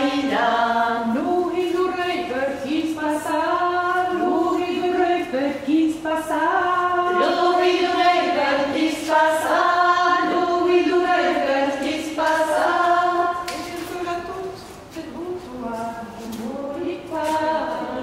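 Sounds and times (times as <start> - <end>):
women singing unaccompanied: 0.0 - 18.0.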